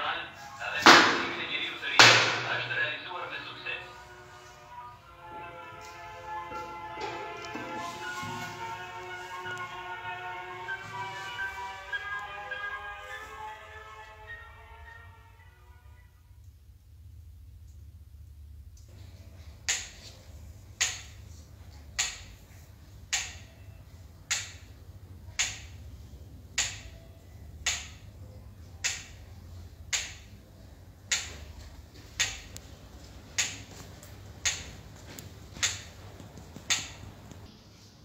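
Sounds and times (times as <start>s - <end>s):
low steady hum: 0.0s - 37.9s
metronome ticking: 21.8s - 22.4s, 23.0s - 23.5s, 24.2s - 25.8s, 26.5s - 27.0s, 27.6s - 28.0s, 34.4s - 34.7s.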